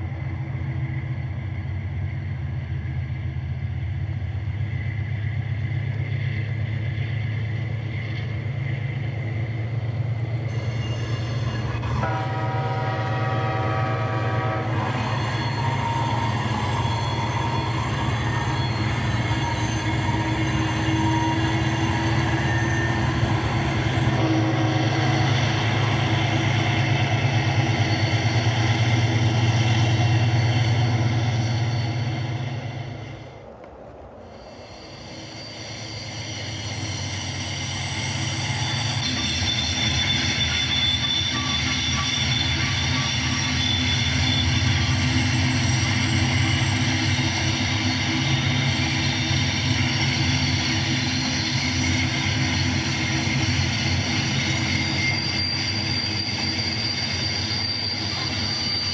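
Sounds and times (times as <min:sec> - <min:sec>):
freight train engine and rail rumble: 0:00.0 - 0:58.9
train air horn blast: 0:11.9 - 0:16.3, 0:24.1 - 0:25.3.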